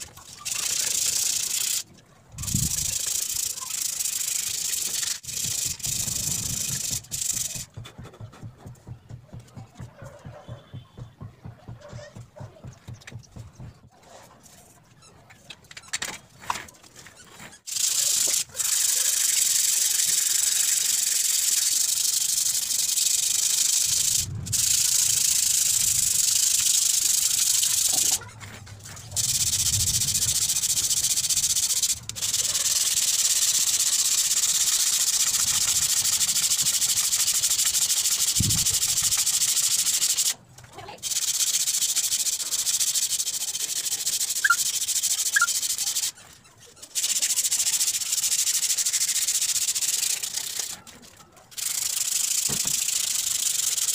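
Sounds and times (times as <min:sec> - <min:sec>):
sandpaper rubbing on rusty steel: 0:00.0 - 0:15.0, 0:16.9 - 0:40.4, 0:41.0 - 0:50.8.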